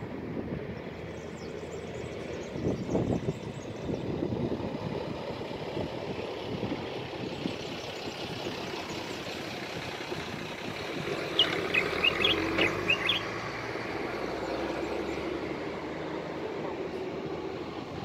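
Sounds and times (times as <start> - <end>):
road traffic rumble: 0.0 - 18.0
bird chirping: 11.1 - 13.5.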